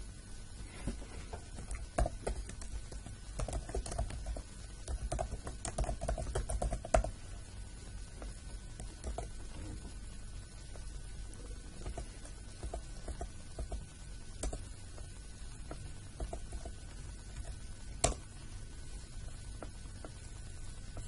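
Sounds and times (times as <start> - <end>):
typing on a keyboard: 1.6 - 7.2, 8.8 - 9.4, 14.4 - 14.6.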